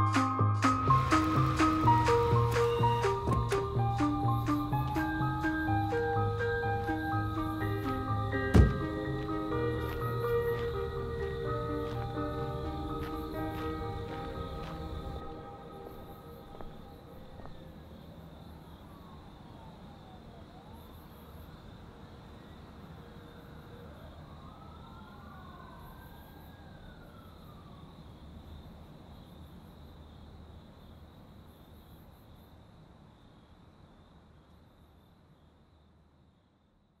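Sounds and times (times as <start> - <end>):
emergency siren wailing: 0.0 - 21.3, 22.4 - 28.4
crickets chirping: 0.0 - 37.0
low city rumble: 0.7 - 35.4.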